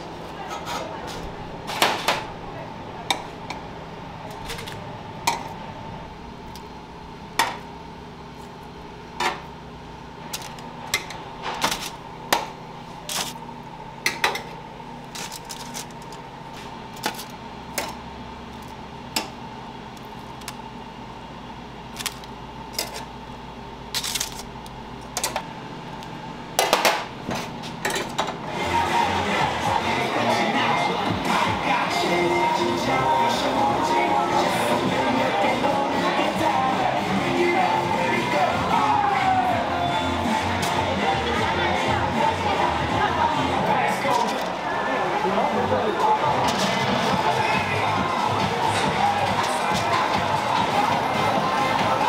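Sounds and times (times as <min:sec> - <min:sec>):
steady hum: 0:00.0 - 0:52.0
metal trays and racks clinking: 0:10.3 - 0:13.4, 0:14.0 - 0:16.2, 0:21.9 - 0:23.1, 0:23.9 - 0:24.5, 0:26.6 - 0:28.4, 0:43.9 - 0:44.6.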